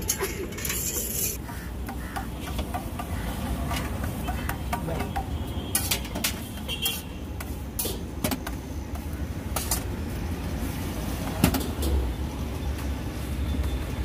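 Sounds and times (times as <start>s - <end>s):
spatula scraping on iron griddle: 0.0s - 2.2s.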